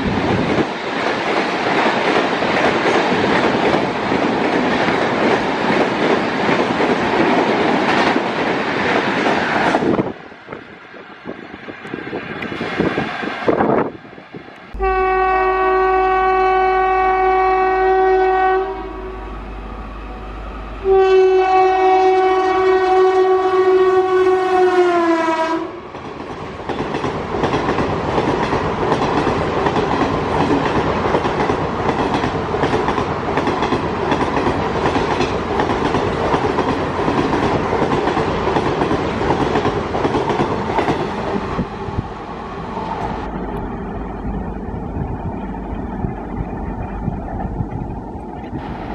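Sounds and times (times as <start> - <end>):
train rumbling on track: 0.0 - 48.9
locomotive air horn blasts: 14.7 - 25.8.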